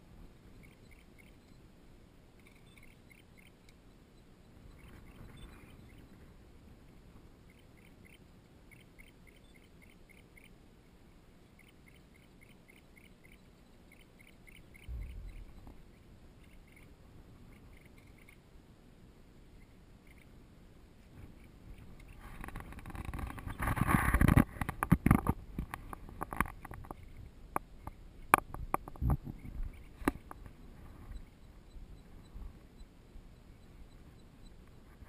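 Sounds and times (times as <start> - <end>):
sharp knocks and taps: 27.6 - 29.4.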